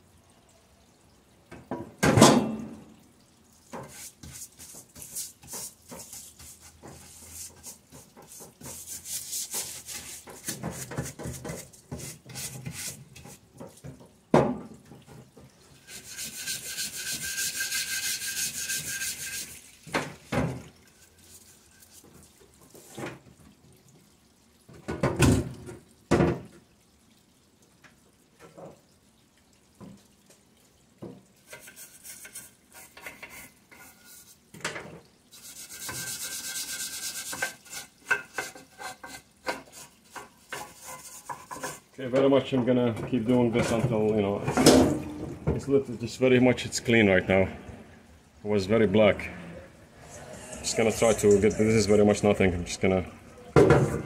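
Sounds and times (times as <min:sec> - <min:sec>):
hand scrubbing engine part: 0:03.8 - 0:13.5, 0:15.9 - 0:19.6, 0:35.4 - 0:41.9, 0:50.0 - 0:52.6
steady hiss: 0:48.4 - 0:54.0.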